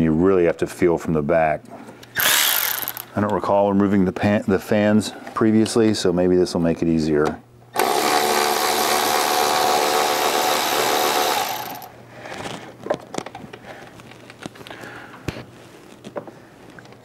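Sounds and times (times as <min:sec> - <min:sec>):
power tool motor whining: 0:02.2 - 0:03.1, 0:07.8 - 0:11.9.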